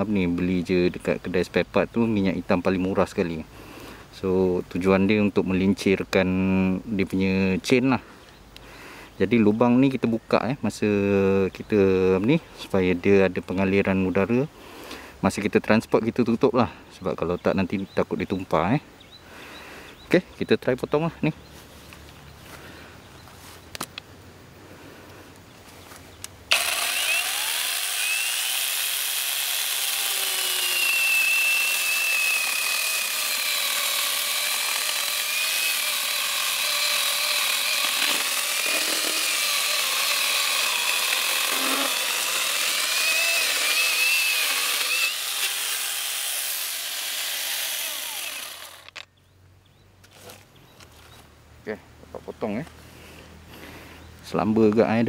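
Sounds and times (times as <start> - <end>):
chainsaw cutting into log: 26.5 - 49.0.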